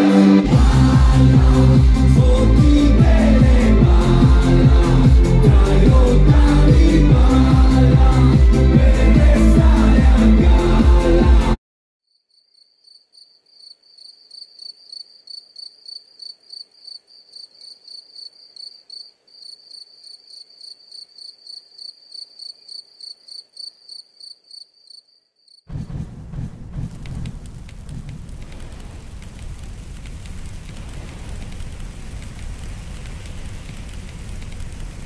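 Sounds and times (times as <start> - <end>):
cricket chirping: 12.1 - 25.7
torches burning and crackling: 25.8 - 35.0.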